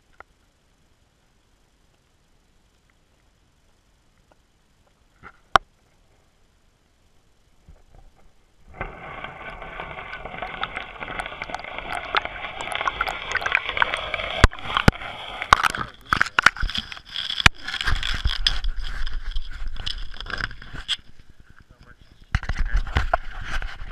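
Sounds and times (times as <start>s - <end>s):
camera housing rushing through water: 7.8s - 21.3s.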